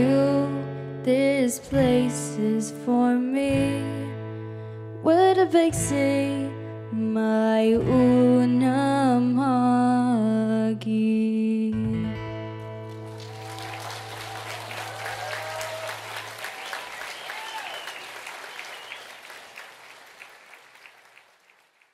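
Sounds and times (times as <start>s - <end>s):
audience whooping: 12.9s - 21.7s
audience applause: 12.9s - 21.9s.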